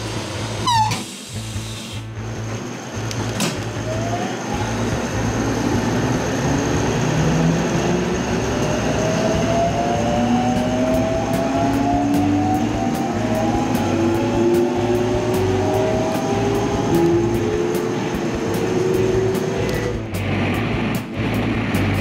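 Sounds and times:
train doors closing: 0.0 - 2.1, 2.7 - 4.8.

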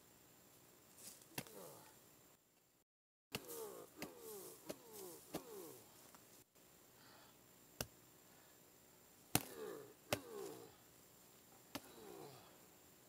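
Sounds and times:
hatchet chopping wood: 3.3 - 5.6, 9.3 - 10.4.

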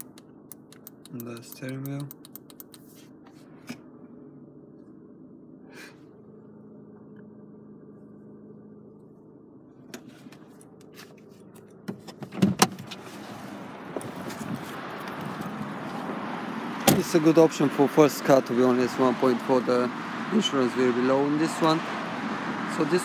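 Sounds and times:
car engine idling: 0.0 - 12.3, 12.9 - 23.0
outdoor noise: 0.0 - 23.0
car door clunks: 11.8 - 13.0.

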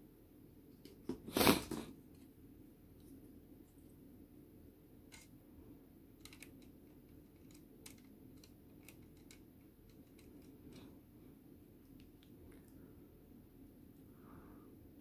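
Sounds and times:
low steady hum: 0.0 - 15.0
plastic model clicks and taps: 6.2 - 10.6.

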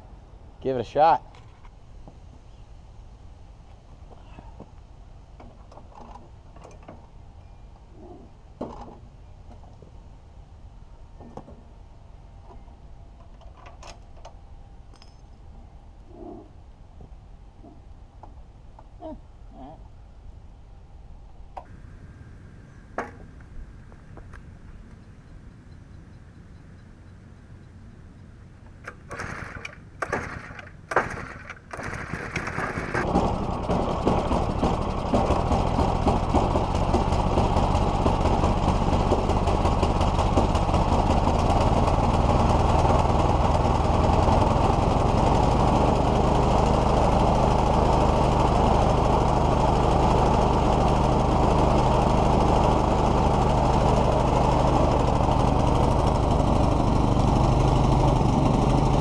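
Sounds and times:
small engine running: 28.5 - 59.0
small engine pull-start cranking: 28.8 - 59.0.

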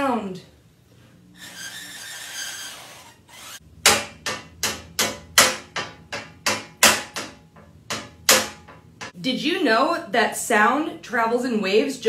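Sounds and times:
wooden spoon beating metal sheet: 1.6 - 9.2.

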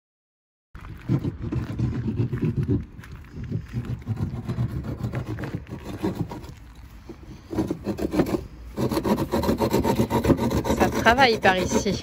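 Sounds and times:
hand saw cutting plywood: 1.0 - 2.8, 3.8 - 6.6, 7.4 - 12.0.

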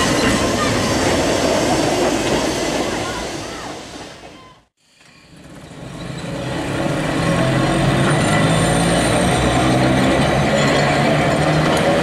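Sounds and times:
electric tram low hum: 5.0 - 12.0.

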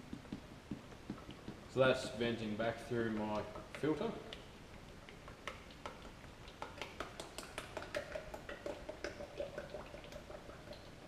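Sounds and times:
air pops and gurgles: 0.0 - 11.0
oil glugging through funnel: 2.8 - 11.0.

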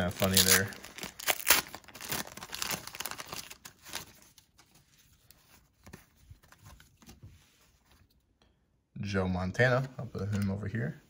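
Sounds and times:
paper wrapper tearing and crinkling: 0.0 - 4.8.

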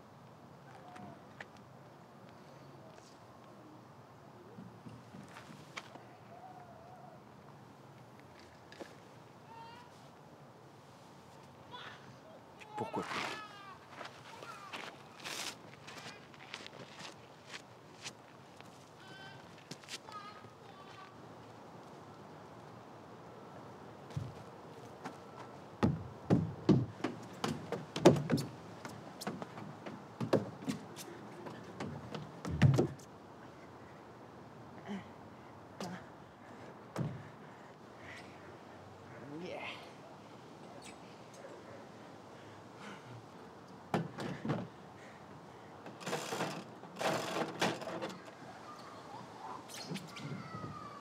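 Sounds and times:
knocks and thumps on playground equipment: 25.8 - 33.1, 36.9 - 37.3, 43.9 - 44.8, 45.8 - 48.3.

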